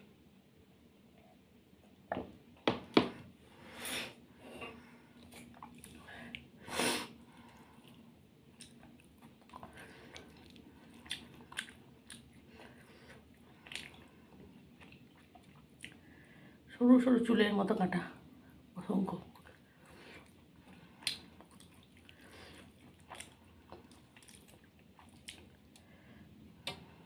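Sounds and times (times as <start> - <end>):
person chewing fried fish: 7.3 - 16.1, 19.4 - 27.0.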